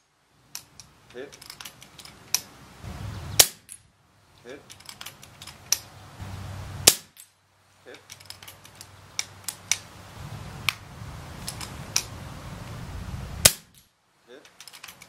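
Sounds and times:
metallic clicks of rifle lever: 0:00.5 - 0:02.5, 0:04.6 - 0:05.9, 0:07.1 - 0:09.9, 0:11.4 - 0:12.1, 0:13.6 - 0:15.0
air rifle shot: 0:03.3 - 0:03.8, 0:06.8 - 0:07.2, 0:13.4 - 0:13.8.

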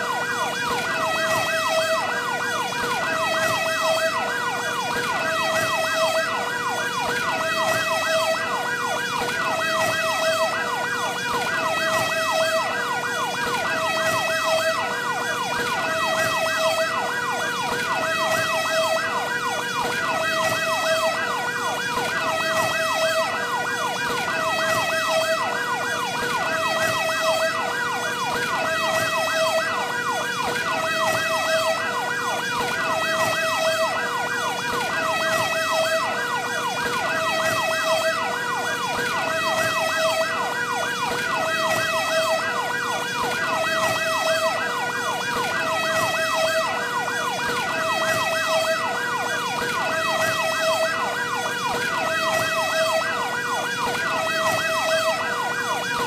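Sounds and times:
two-tone siren: 0:00.0 - 0:56.0
yelp siren: 0:00.0 - 0:56.0.

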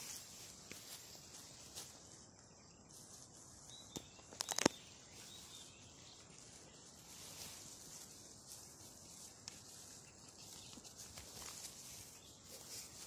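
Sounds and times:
sharp clicks and crackles: 0:03.9 - 0:04.8.

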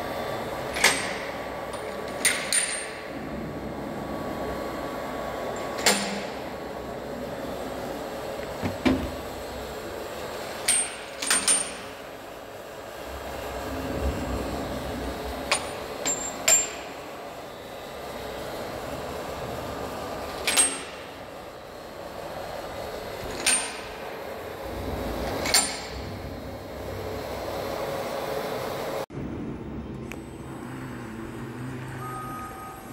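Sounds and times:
lathe humming: 0:02.9 - 0:29.1, 0:30.0 - 0:32.9.

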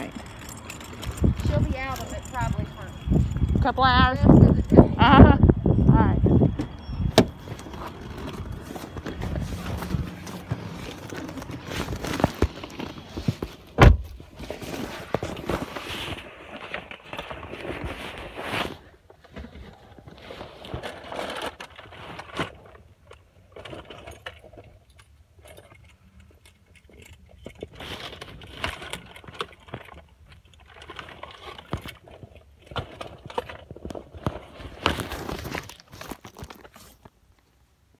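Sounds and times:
phone handling rustling and scraping: 0:00.0 - 0:03.6, 0:06.4 - 0:22.7, 0:30.8 - 0:37.2.

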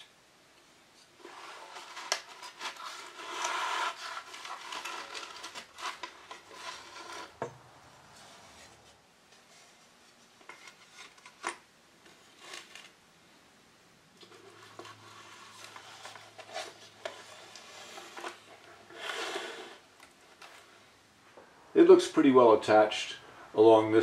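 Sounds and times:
frame scraping on board: 0:01.2 - 0:09.0, 0:14.3 - 0:20.7.

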